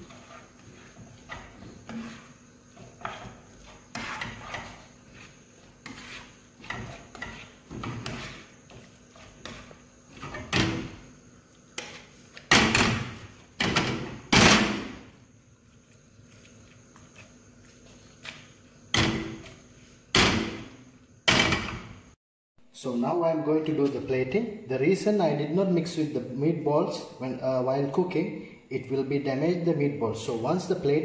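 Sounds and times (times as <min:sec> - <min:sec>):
spatula knocking and scraping pan: 0:00.0 - 0:11.1, 0:11.7 - 0:15.0.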